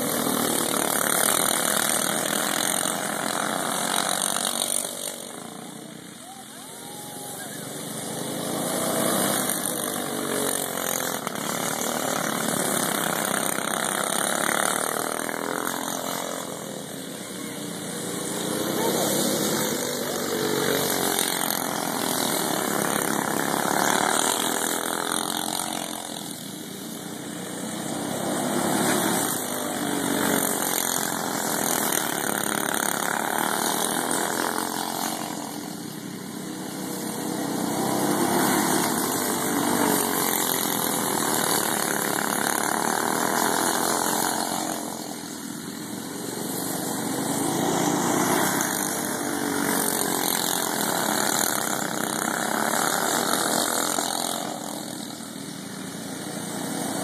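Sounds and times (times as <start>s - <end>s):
go-kart engines passing: 0.0s - 57.0s.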